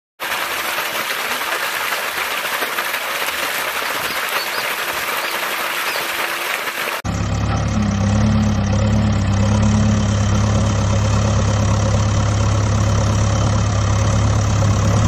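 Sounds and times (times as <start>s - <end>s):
water gushing onto concrete floor: 0.2s - 7.0s.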